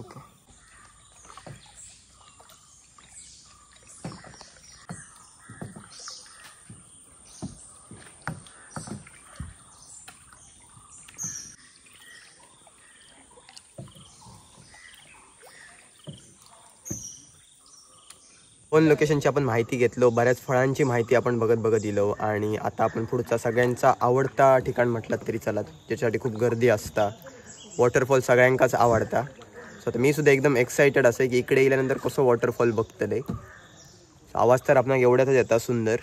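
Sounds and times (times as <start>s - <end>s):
kayak paddles splashing in water: 0.0s - 18.6s.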